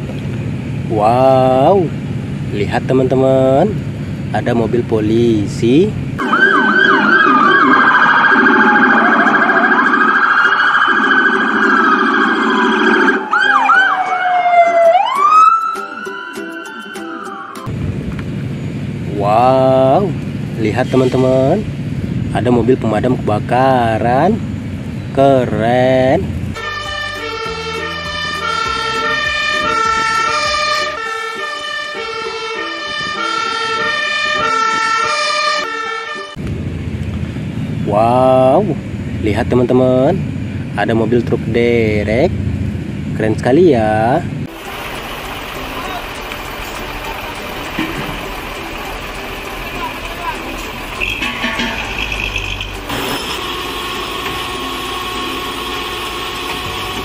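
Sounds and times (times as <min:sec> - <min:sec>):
truck engine rumbling: 0:00.0 - 0:16.8, 0:17.4 - 0:57.0
police sirens wailing: 0:05.7 - 0:17.7, 0:26.5 - 0:36.4, 0:44.4 - 0:57.0.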